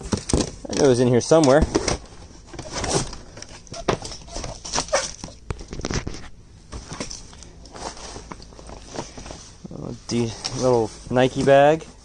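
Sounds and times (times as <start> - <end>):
objects knocking and clattering: 0.0 - 7.4
rustling fabric and bags: 0.0 - 12.0.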